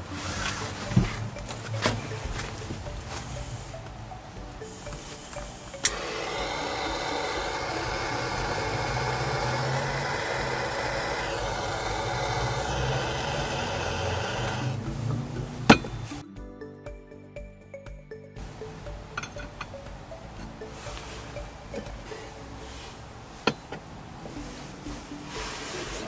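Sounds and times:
jet flame hissing: 4.6s - 14.8s.

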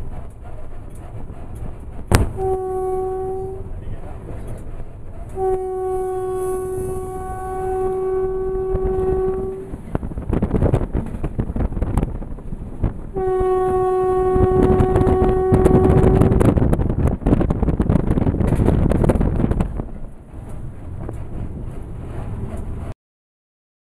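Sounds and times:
train wheels clattering on rails: 0.0s - 2.6s, 3.7s - 5.5s, 14.8s - 22.9s
locomotive horn blasts: 2.1s - 3.8s, 5.3s - 9.8s, 13.1s - 16.6s.

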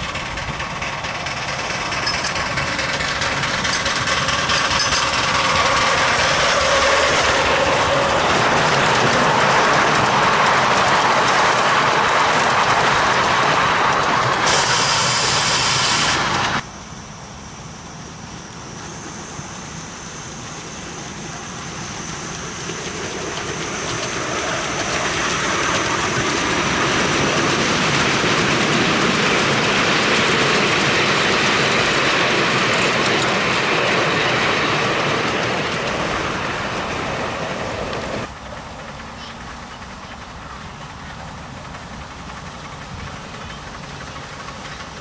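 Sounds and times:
miniature train passing: 0.0s - 45.0s.

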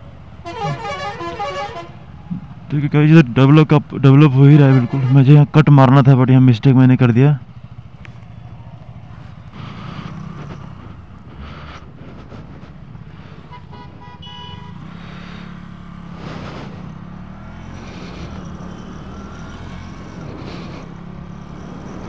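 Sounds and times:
vehicle horn honking: 0.4s - 2.0s, 4.6s - 5.4s, 13.5s - 14.9s
motorcycle engine running: 7.4s - 22.0s.

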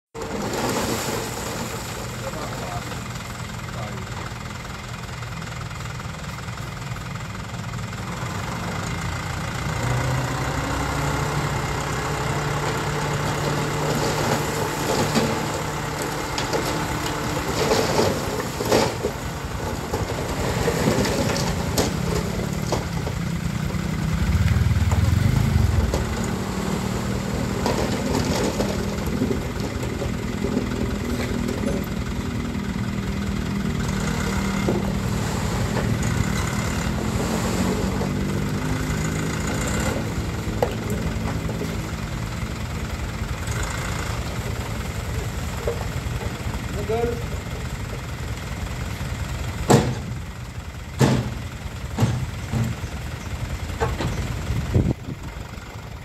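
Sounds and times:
soil and stones clattering: 0.2s - 3.0s, 12.7s - 23.9s, 24.5s - 32.1s
diesel truck engine revving: 0.2s - 56.0s
low rumble: 23.7s - 27.1s.

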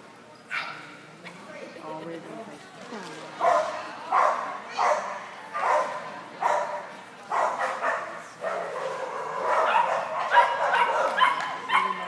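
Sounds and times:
dog barking: 3.4s - 12.0s.

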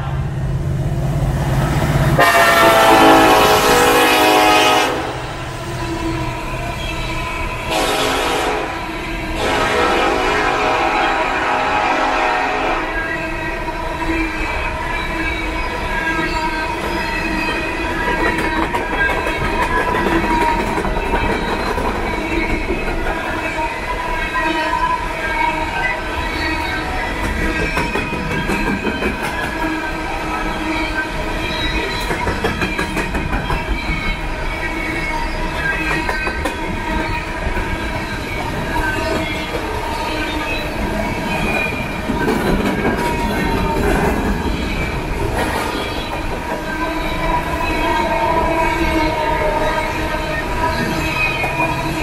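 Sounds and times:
steel wheels rumbling on rail: 0.0s - 52.0s
high-pitched wheel squeal: 12.8s - 52.0s
wheels clicking over rail joints: 16.8s - 23.3s.

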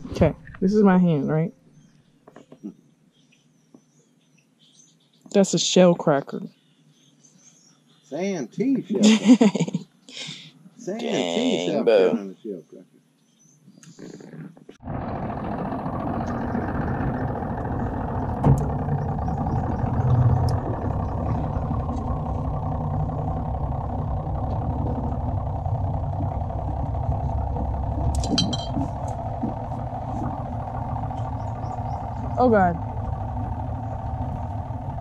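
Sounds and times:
outboard motor running: 0.0s - 1.9s, 13.9s - 35.0s.

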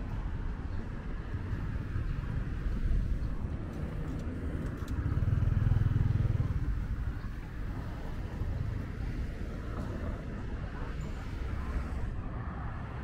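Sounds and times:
low traffic rumble: 0.0s - 13.0s
vehicle engine passing by: 3.9s - 10.2s.

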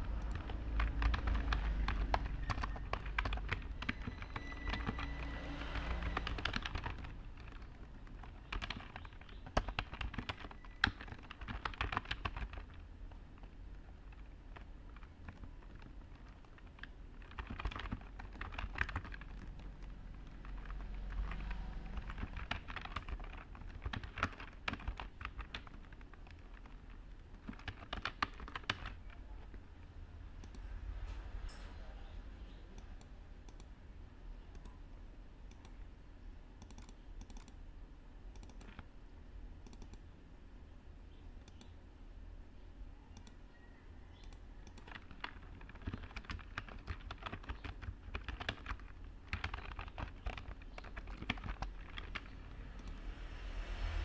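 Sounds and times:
typing on computer keyboard: 0.0s - 29.6s, 30.4s - 30.7s, 35.5s - 35.8s, 36.6s - 37.6s, 38.3s - 38.9s, 39.6s - 40.1s, 43.1s - 43.4s, 44.2s - 53.1s
low background noise: 0.0s - 54.0s.

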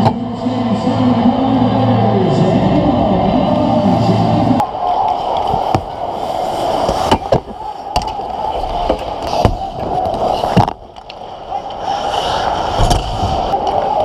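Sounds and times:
hockey sticks and puck clacking: 6.6s - 12.3s
skate blades scraping ice: 8.5s - 10.6s, 11.5s - 13.9s.

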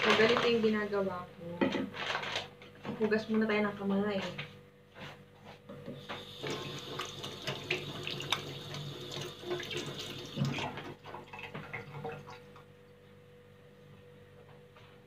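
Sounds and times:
tap running: 5.8s - 12.2s.

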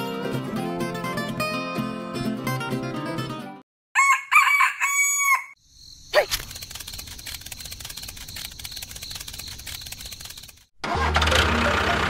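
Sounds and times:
guitar music: 0.0s - 3.6s
rooster crowing: 4.0s - 5.6s.

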